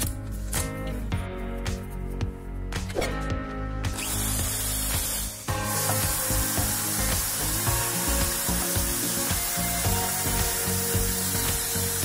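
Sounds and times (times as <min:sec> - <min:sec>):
background music: 0:00.0 - 0:12.0
electric drill running: 0:03.9 - 0:12.0.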